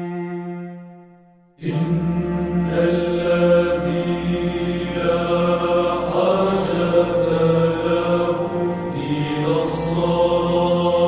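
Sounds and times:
person chanting a hymn: 1.6 - 11.0
steady low drone note: 1.6 - 11.0.

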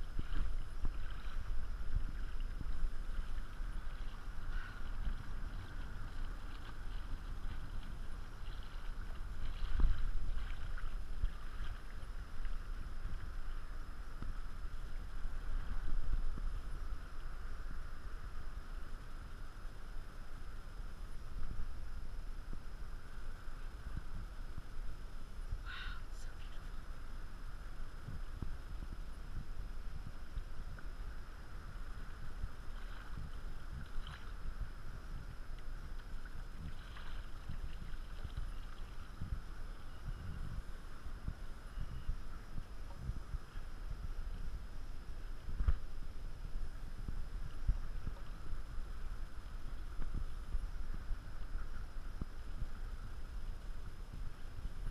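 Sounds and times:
faint splashes: 0.0 - 17.2, 30.2 - 41.4
water lapping against hull: 0.0 - 17.5, 27.7 - 54.9
wind buffeting microphone: 0.0 - 19.2, 26.6 - 54.9.

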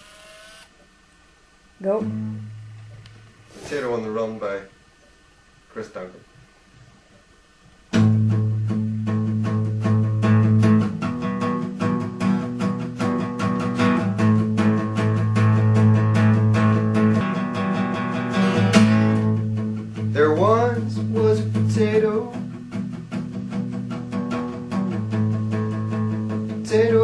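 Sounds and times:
acoustic guitar strumming: 1.8 - 3.2, 7.9 - 27.0
man singing: 20.1 - 22.4, 26.5 - 27.0.

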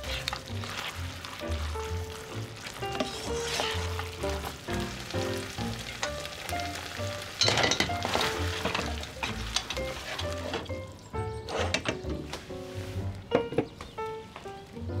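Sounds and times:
tongs tossing pasta: 0.0 - 10.5
pasta sizzling in a frying pan: 0.0 - 10.6.

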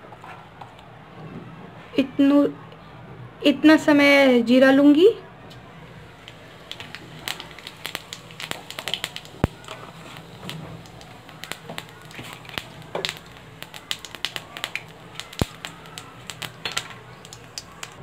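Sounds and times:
seeds crackling in hot oil: 5.5 - 18.0.

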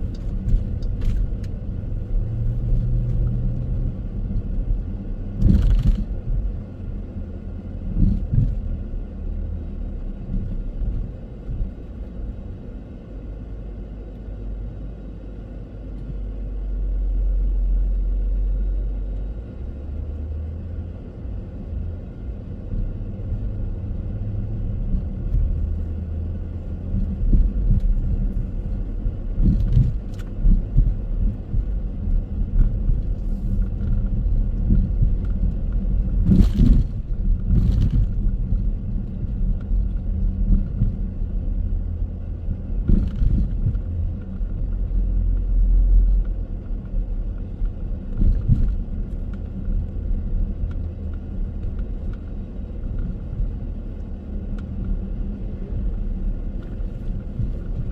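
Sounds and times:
car road and engine rumble: 0.0 - 57.9
knocks from road bumps: 29.3 - 31.8.

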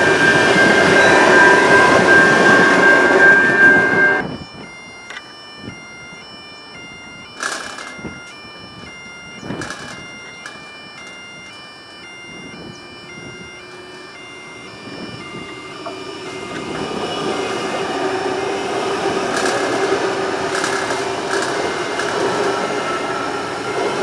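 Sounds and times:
electric train passing: 0.0 - 24.0
train wheels clattering over rails: 7.4 - 8.1, 9.5 - 11.2, 13.6 - 24.0.

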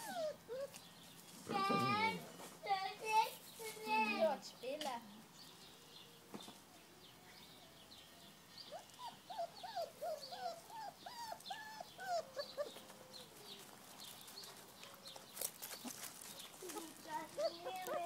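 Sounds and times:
puppies whimpering: 0.0 - 0.8, 8.7 - 13.9, 16.6 - 18.0.

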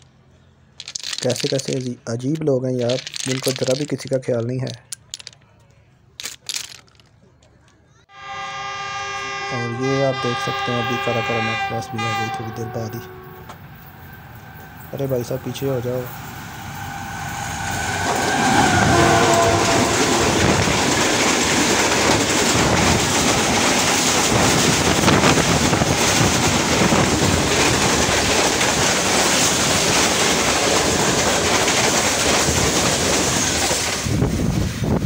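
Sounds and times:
train horn: 8.1 - 13.6, 16.7 - 21.2
train wheels on rails: 10.4 - 35.0
clickety-clack over rail joints: 17.8 - 34.4.

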